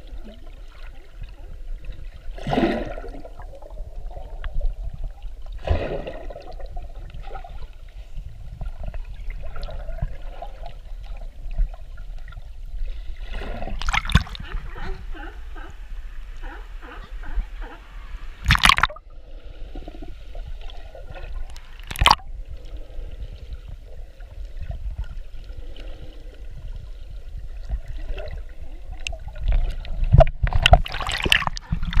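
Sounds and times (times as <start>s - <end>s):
seawater sloshing and gurgling: 0.0s - 15.6s, 18.4s - 19.0s, 19.8s - 22.3s, 23.7s - 32.0s
muffled underwater rumble: 0.0s - 32.0s
sharp water splashes: 13.8s - 14.5s, 18.4s - 19.0s, 21.8s - 22.2s, 30.6s - 32.0s.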